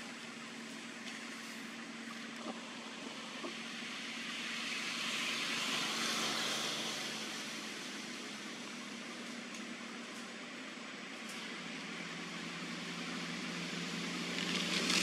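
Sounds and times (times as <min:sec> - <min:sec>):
passing vehicle rushing: 0:03.1 - 0:08.9.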